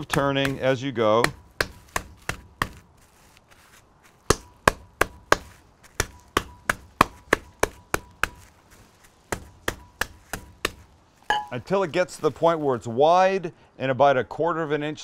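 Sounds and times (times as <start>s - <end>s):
pounding meat knocks: 0.0s - 2.8s, 4.3s - 8.4s, 9.3s - 11.5s.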